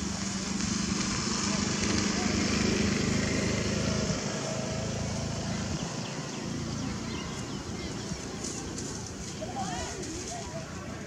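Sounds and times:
outdoor background noise: 0:00.0 - 0:11.0.

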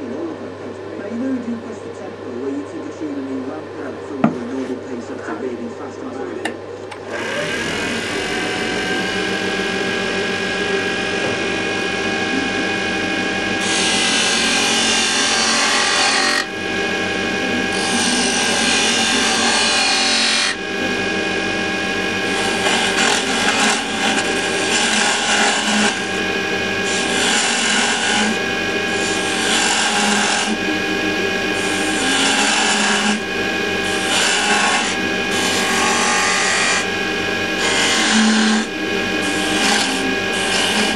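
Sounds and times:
lathe motor whine: 0:00.0 - 0:40.9
chisel scraping spinning wood: 0:13.5 - 0:40.9.

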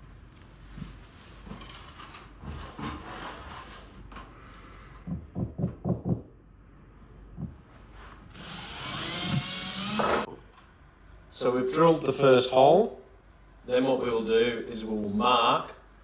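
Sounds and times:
loud knocks: 0:05.1 - 0:06.3
cordless drill boring into plasterboard: 0:08.3 - 0:10.3.

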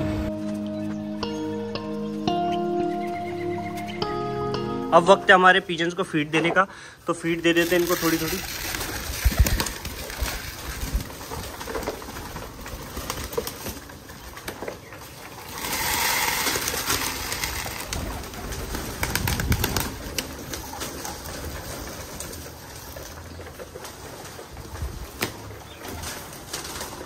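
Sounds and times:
pigeons cooing: 0:00.0 - 0:04.8, 0:07.7 - 0:27.0
clicks and shuffling: 0:06.4 - 0:27.0
grain feed being poured: 0:07.4 - 0:11.7, 0:15.2 - 0:19.0.

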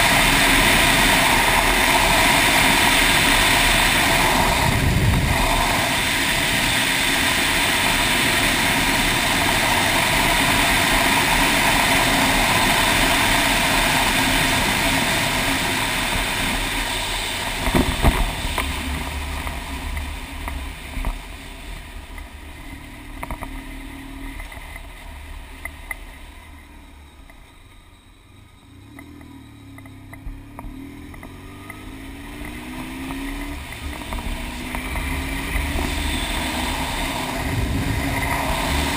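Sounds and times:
wind rushing over microphone: 0:00.0 - 0:22.6, 0:33.4 - 0:38.9
motorcycle engine: 0:00.0 - 0:38.9.

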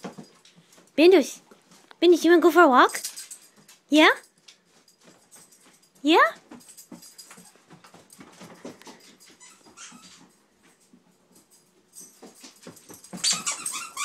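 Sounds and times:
dog whimpering: 0:09.3 - 0:10.3, 0:13.2 - 0:14.0
high-pitched squeaks: 0:09.3 - 0:10.3, 0:13.2 - 0:14.0.

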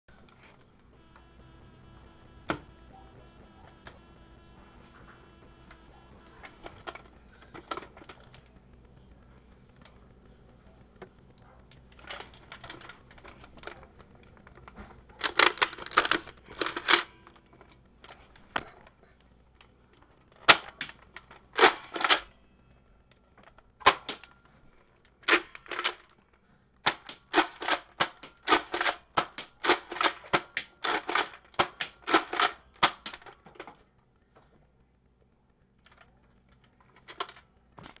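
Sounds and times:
toy blaster firing clacks: 0:26.8 - 0:33.4.

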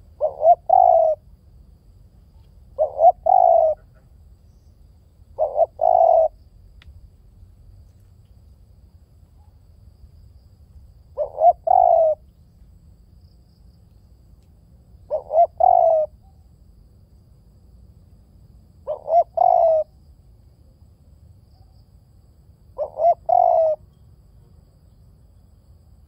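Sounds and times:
dove cooing: 0:00.0 - 0:01.2, 0:02.7 - 0:04.1, 0:05.4 - 0:06.4, 0:11.2 - 0:12.2, 0:15.1 - 0:16.2, 0:18.8 - 0:20.0, 0:22.8 - 0:23.8.

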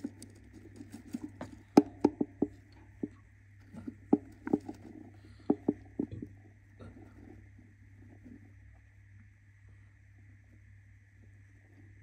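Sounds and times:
bird tapping and scratching on wood: 0:00.0 - 0:06.3
faint steady hum: 0:00.0 - 0:12.0.

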